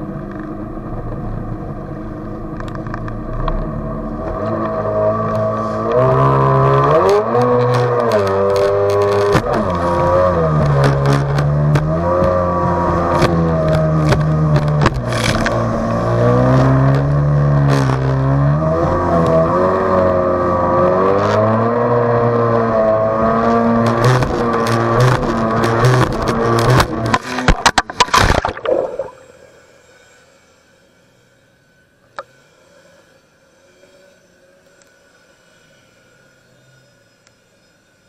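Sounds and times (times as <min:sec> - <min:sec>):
jet ski engine: 0:12.4 - 0:18.3
water slapping hull: 0:27.2 - 0:29.3.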